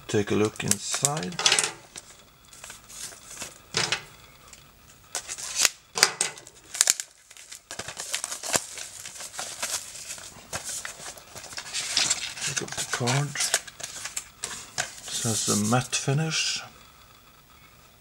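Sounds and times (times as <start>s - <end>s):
shrink-wrap crinkling and tearing: 0.6s - 3.7s, 5.1s - 16.0s.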